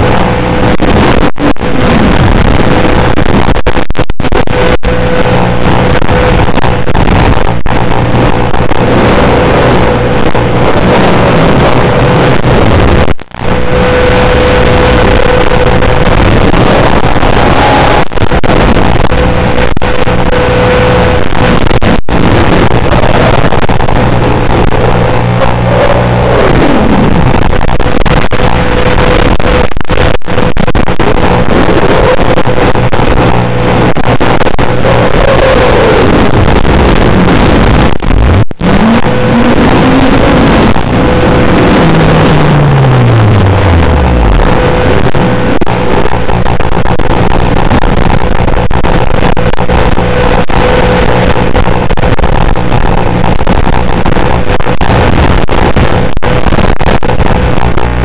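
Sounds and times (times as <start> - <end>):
drone motors buzzing: 0.0 - 58.0.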